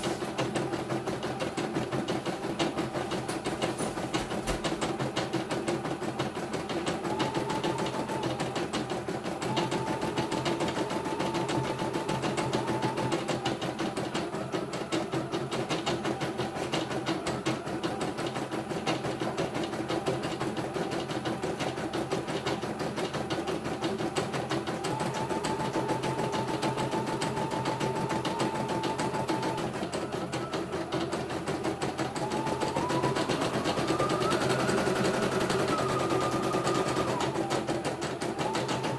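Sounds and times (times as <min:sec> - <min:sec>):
embroidery machine stitching: 0:00.0 - 0:38.9
thin whining tone: 0:23.4 - 0:38.9.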